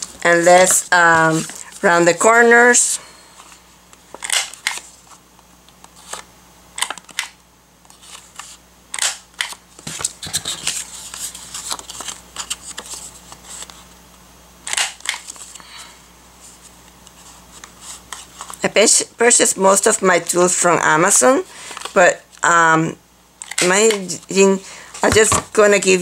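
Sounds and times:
paper rustling: 0.0 - 2.1, 7.8 - 8.6, 9.5 - 13.9.

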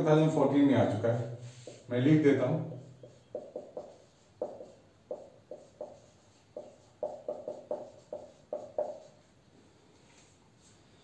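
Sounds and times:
marker knocking on whiteboard: 1.6 - 1.9, 2.6 - 9.2.

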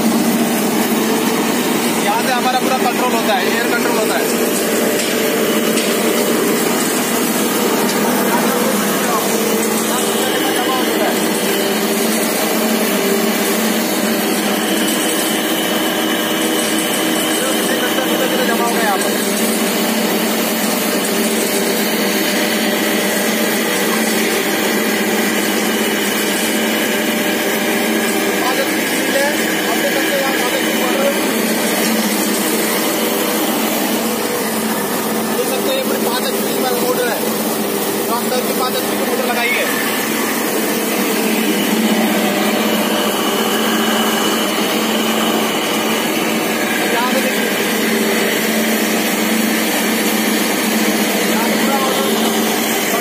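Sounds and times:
mill machinery whirring: 0.0 - 53.0
motor and blower hum: 0.0 - 53.0.

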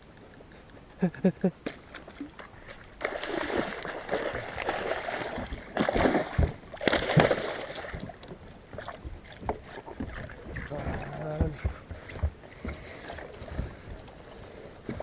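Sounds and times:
fish splashing at the surface: 1.8 - 8.2.

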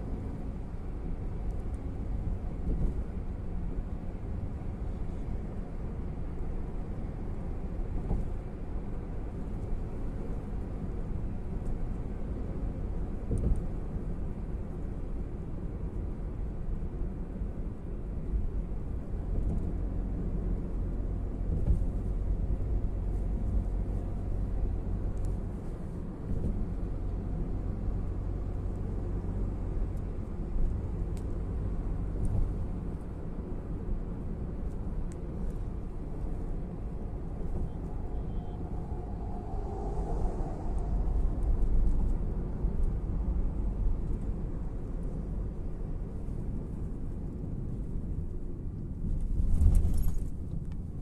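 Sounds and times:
airliner cabin rumble: 33.8 - 51.0.

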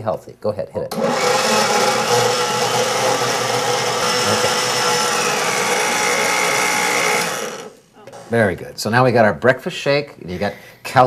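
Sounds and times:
blender motor whine: 1.0 - 8.2.

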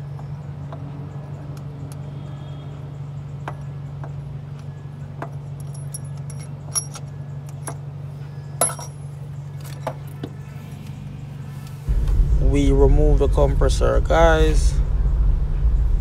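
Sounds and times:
steady low hum: 0.0 - 16.0
metallic clinks of tools on metal: 4.6 - 7.9, 8.6 - 9.9.

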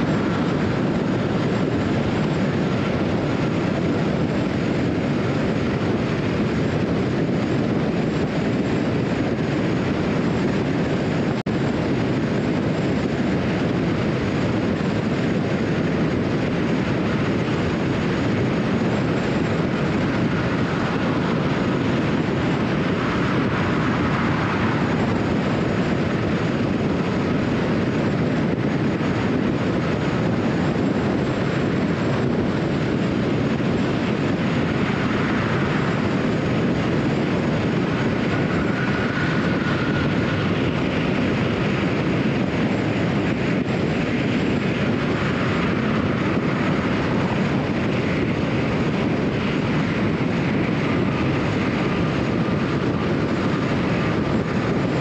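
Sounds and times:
faint whine: 0.0 - 55.0
car road noise: 16.8 - 28.0, 31.0 - 55.0.

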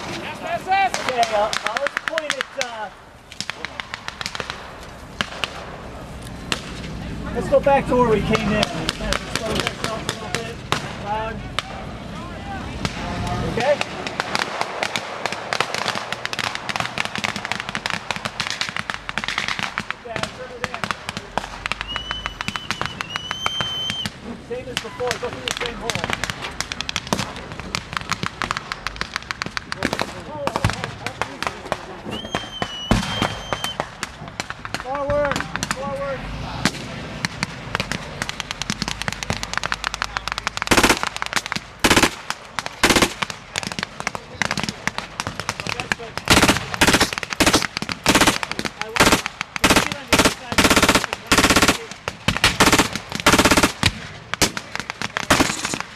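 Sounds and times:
scattered rifle shots: 0.0 - 5.8, 13.6 - 23.8, 36.7 - 55.9
small-arms gunfire cracks: 0.0 - 5.8, 8.3 - 11.8, 12.8 - 35.9, 36.6 - 55.9
machine gun bursts: 40.7 - 41.2, 41.8 - 42.2, 42.8 - 43.2, 46.3 - 53.8.

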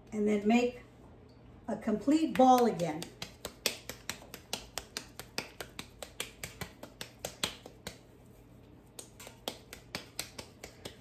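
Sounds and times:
dough slapped between palms: 2.3 - 8.2, 8.8 - 11.0.

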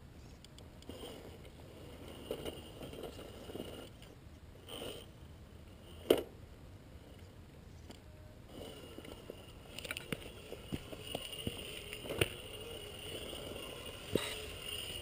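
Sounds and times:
electric motor and gearbox whining: 8.5 - 15.0.

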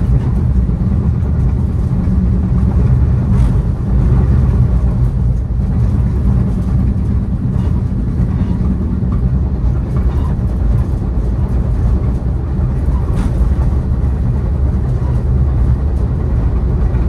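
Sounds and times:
train rumbling on rails: 0.0 - 17.0.

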